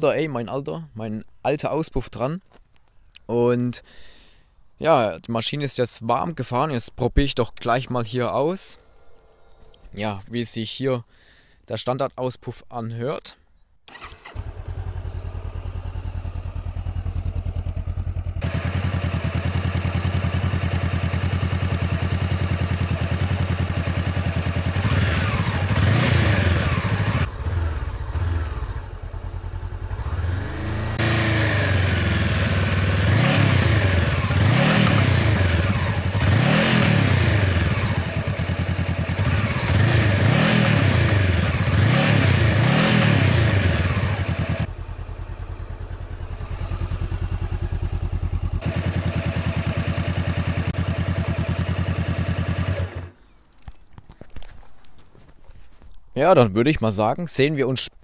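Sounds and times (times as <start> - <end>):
motorcycle engine idling and revving: 13.9 - 53.4.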